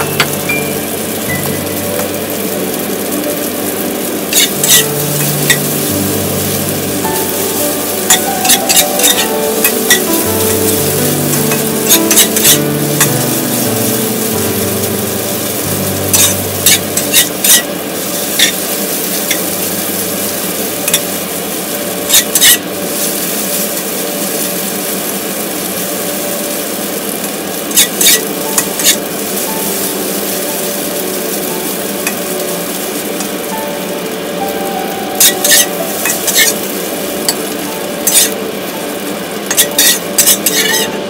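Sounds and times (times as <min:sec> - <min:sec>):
noodles sizzling in a wok: 0:00.0 - 0:41.0
metal spatula scraping a wok: 0:04.3 - 0:06.0, 0:07.3 - 0:10.2, 0:10.9 - 0:13.1, 0:16.0 - 0:19.6, 0:20.9 - 0:21.1, 0:22.1 - 0:24.6, 0:27.6 - 0:29.1, 0:35.2 - 0:36.7, 0:38.0 - 0:38.4, 0:39.4 - 0:41.0.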